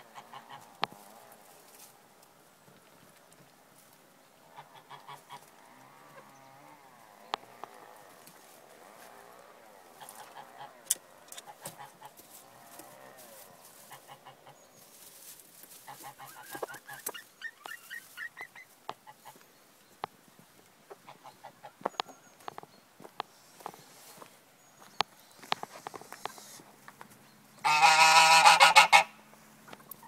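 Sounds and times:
chicken clucks: 0.0 - 1.5, 4.5 - 9.1, 9.9 - 12.9, 13.6 - 19.4, 20.8 - 22.6, 25.4 - 26.7, 27.6 - 30.0
chickens calling: 0.0 - 1.9, 4.3 - 30.0.

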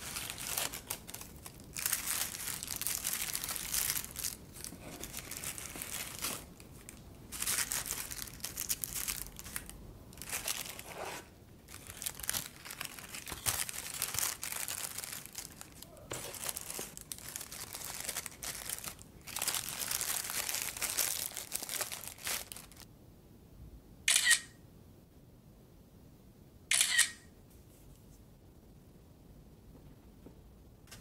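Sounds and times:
paper wrappers crinkling: 0.0 - 22.9
phone camera shutter sound: 24.1 - 24.6, 26.7 - 27.3.

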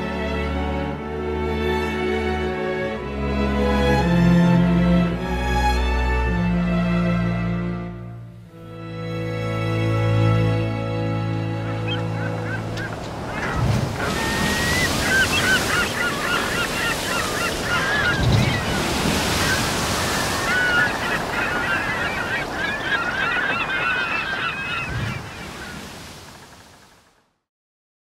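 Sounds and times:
sea surf washing: 11.0 - 27.1
gulls calling: 11.2 - 27.1.

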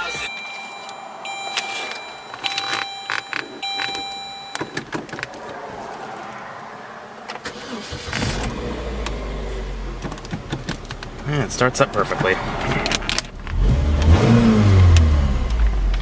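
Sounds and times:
dashboard chime pulsing: 0.0 - 4.8
car engine starting and idling: 0.0 - 16.0
clicks: 0.2 - 6.2.

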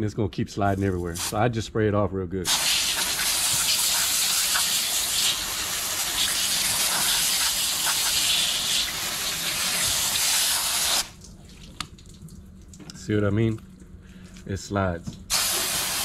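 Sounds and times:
hose nozzle spraying water: 2.5 - 11.2, 15.3 - 16.0.

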